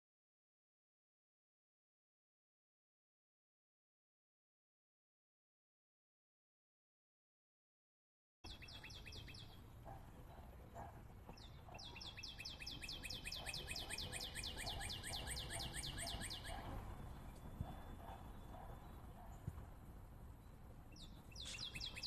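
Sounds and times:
bird chirping rapidly: 0:08.5 - 0:09.6, 0:11.3 - 0:19.4, 0:20.9 - 0:22.0.

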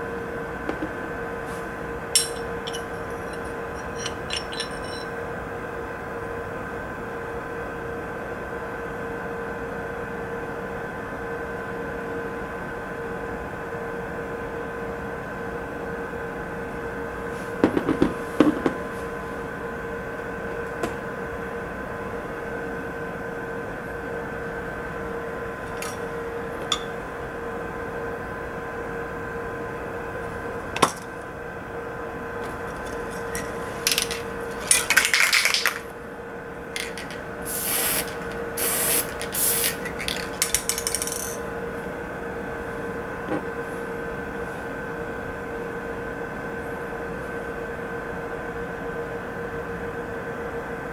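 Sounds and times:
electrical hum: 0:00.0 - 0:50.9
pistol parts clicking: 0:02.2 - 0:05.0, 0:36.8 - 0:37.2, 0:39.1 - 0:41.4
aerosol spray hisses: 0:37.5 - 0:39.8.

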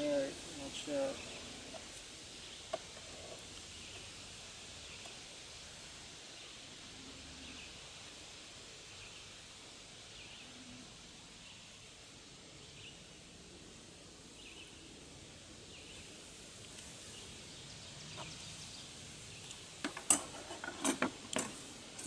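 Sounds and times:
bird chirping: 0:00.0 - 0:05.2, 0:14.3 - 0:14.9, 0:15.6 - 0:19.7
steady background hiss: 0:00.0 - 0:22.0.

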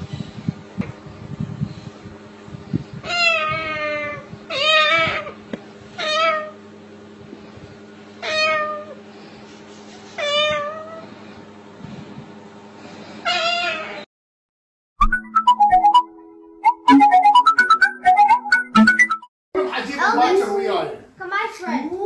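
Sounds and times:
cockatoo meowing like a cat: 0:03.0 - 0:05.4, 0:06.0 - 0:06.6, 0:08.2 - 0:09.0, 0:10.2 - 0:11.0, 0:13.2 - 0:14.1.

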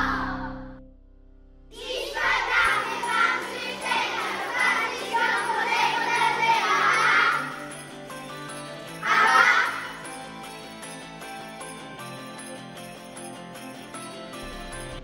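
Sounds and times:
children calling out and cheering: 0:00.0 - 0:00.6, 0:01.8 - 0:08.0, 0:08.8 - 0:10.3
song: 0:01.8 - 0:13.6.

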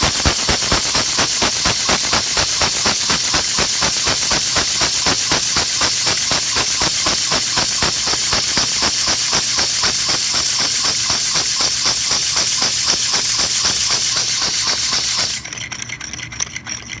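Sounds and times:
air engine exhaust puffs: 0:00.0 - 0:15.5
steady air hiss: 0:00.0 - 0:15.5.

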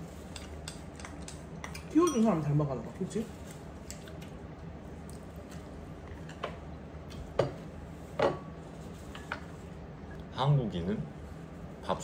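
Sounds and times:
low steady hum: 0:00.0 - 0:12.0
utensils clinking against dishes: 0:00.3 - 0:02.6.

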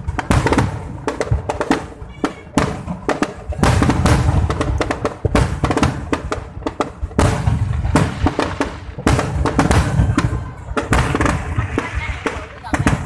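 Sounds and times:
firework bangs: 0:00.0 - 0:13.0
firework crackling: 0:00.0 - 0:13.0.

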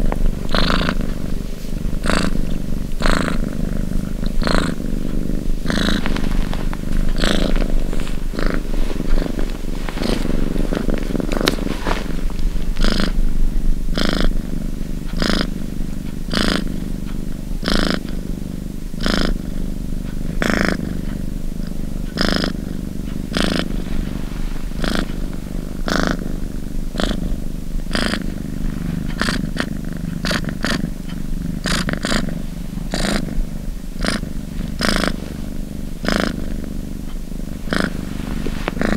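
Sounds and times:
cat purring: 0:00.0 - 0:38.9.

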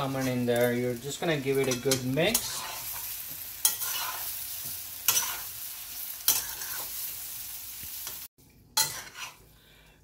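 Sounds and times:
oil sizzling: 0:00.0 - 0:09.6
metal utensil striking pan: 0:08.8 - 0:09.4.

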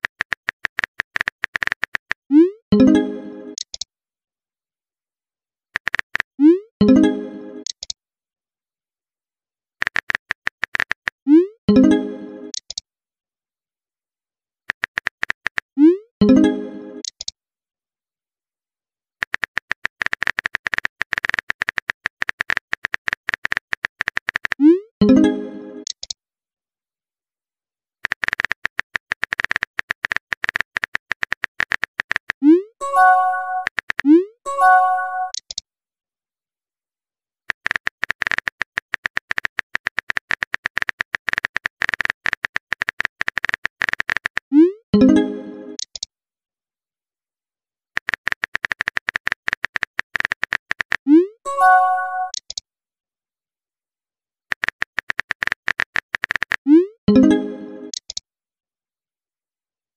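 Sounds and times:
phone keyboard tapping clicks: 0:37.5 - 0:44.4, 0:48.0 - 0:51.0, 0:54.5 - 0:56.6
phone keyboard key clicks: 0:54.5 - 0:56.6.

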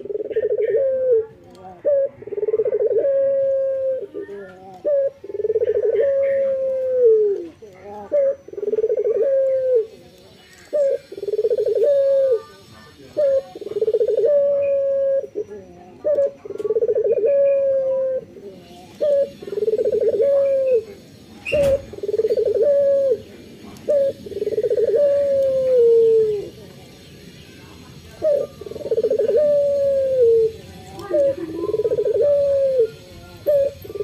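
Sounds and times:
dove cooing: 0:00.0 - 0:26.7, 0:28.0 - 0:34.0.

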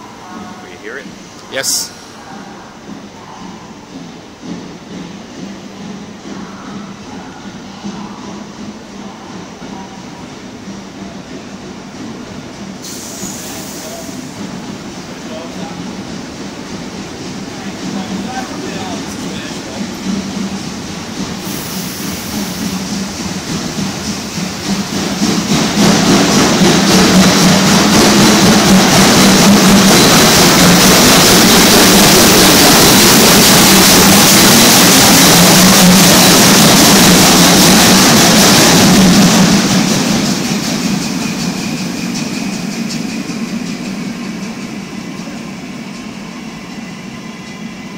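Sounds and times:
steam venting hiss: 0:12.7 - 0:15.0, 0:21.1 - 0:26.3.

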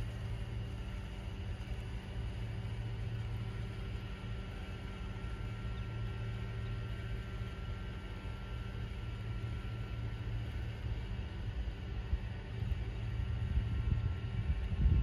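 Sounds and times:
low outdoor rumble: 0:00.0 - 0:15.0.

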